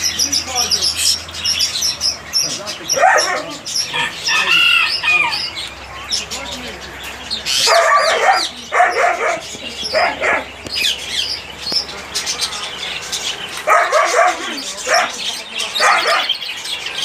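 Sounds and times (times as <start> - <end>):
small birds chirping: 0.0 - 17.0
dog barking: 2.9 - 3.7, 7.6 - 10.5, 13.6 - 15.2, 15.8 - 16.4.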